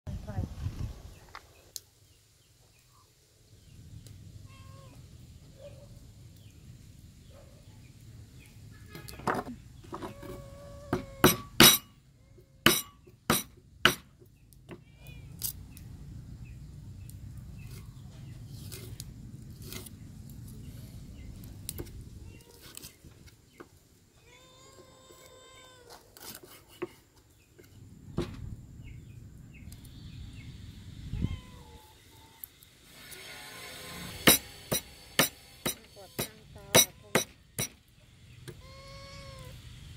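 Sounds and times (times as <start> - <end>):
knife scraping fish scales: 25.9 - 27.1.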